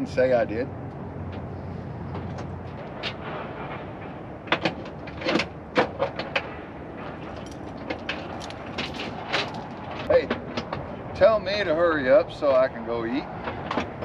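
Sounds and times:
metal chain clanking: 0:07.2 - 0:10.1.

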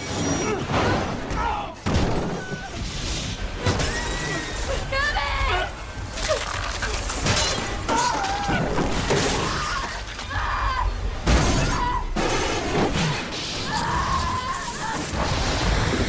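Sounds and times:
glass shattering: 0:06.2 - 0:09.6.

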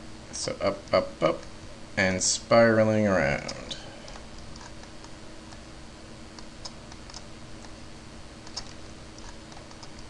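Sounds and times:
faint steady hum: 0:00.0 - 0:10.0
computer mouse clicks: 0:03.4 - 0:05.6, 0:06.4 - 0:07.8, 0:08.4 - 0:10.0.

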